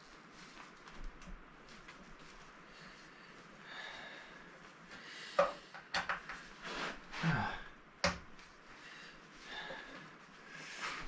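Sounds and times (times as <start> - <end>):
rustling: 0.0 - 3.6.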